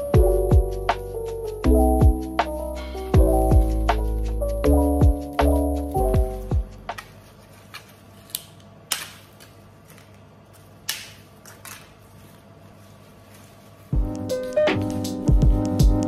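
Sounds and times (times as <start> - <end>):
background music: 0.0 - 7.1, 13.9 - 16.0.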